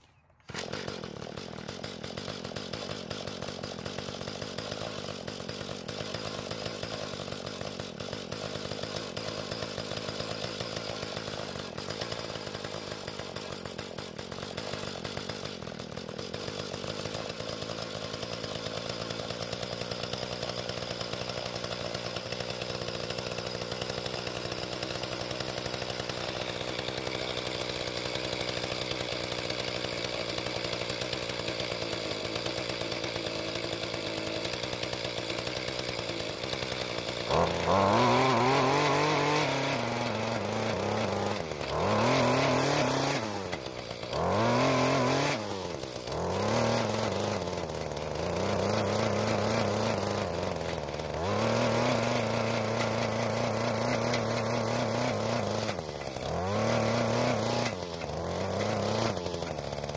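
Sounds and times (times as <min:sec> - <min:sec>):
small two-stroke engine idling: 0:00.0 - 0:59.9.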